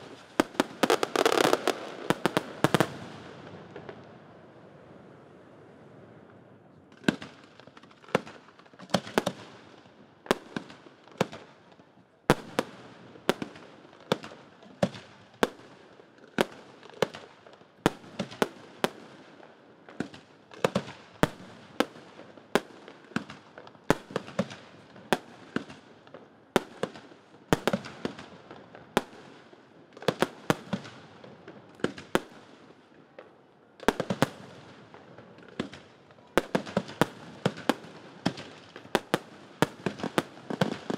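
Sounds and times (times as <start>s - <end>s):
fireworks bursting: 0.0s - 4.1s, 16.4s - 40.9s.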